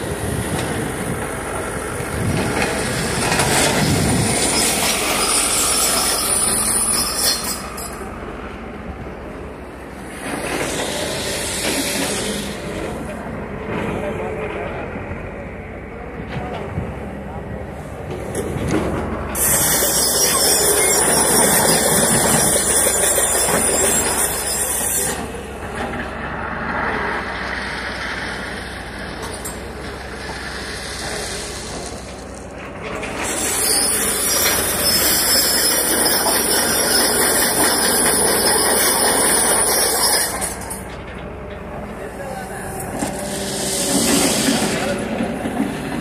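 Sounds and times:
excavators rumbling: 0.0s - 46.0s
loud hissing rush: 9.8s - 13.2s, 30.0s - 32.3s, 43.1s - 45.9s.

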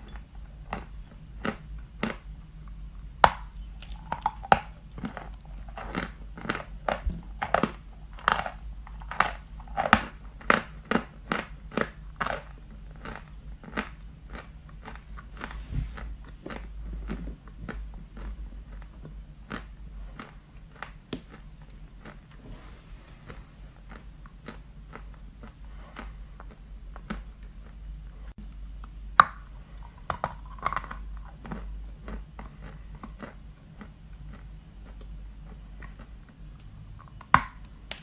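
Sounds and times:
chewing crunchy chalk: 0.6s - 22.4s, 29.7s - 37.4s.

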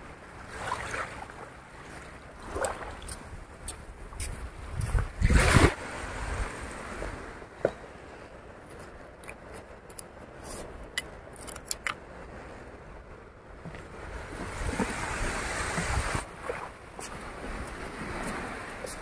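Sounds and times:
surf washing on a beach: 4.5s - 9.0s, 12.2s - 19.0s.

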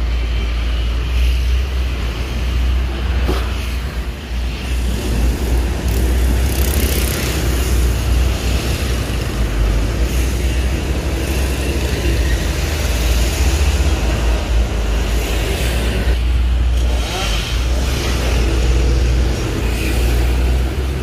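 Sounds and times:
chainsaw cutting limbs: 16.7s - 19.4s.

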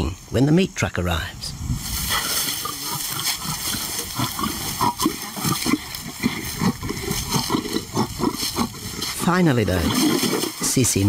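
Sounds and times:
lion growling: 2.0s - 11.0s.

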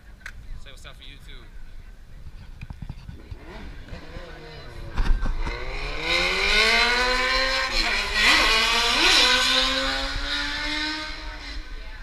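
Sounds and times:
motorcycle engine revving: 3.0s - 12.0s.

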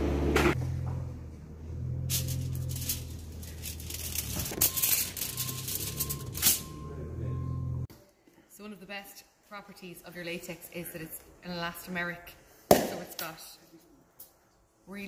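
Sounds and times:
rustling crinkling handling noise: 2.1s - 6.6s.

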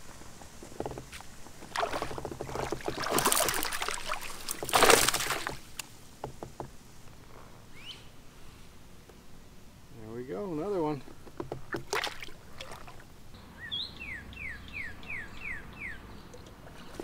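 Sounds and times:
water splashing and sloshing: 0.0s - 6.9s, 11.0s - 13.3s, 16.3s - 17.0s.

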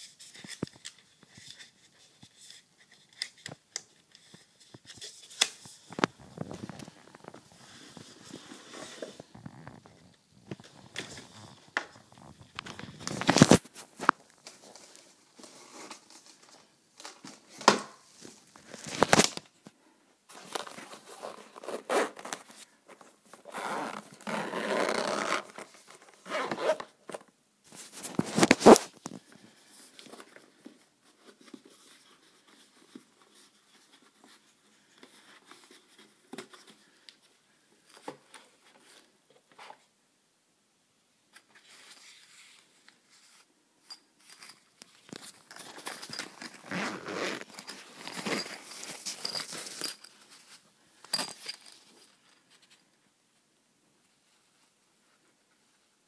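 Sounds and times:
handling of a case: 4.2s - 19.6s, 20.3s - 34.1s, 44.3s - 51.8s
zipper being pulled open: 6.0s - 13.6s, 20.5s - 22.5s, 23.4s - 26.9s, 28.1s - 29.0s, 46.0s - 48.7s.

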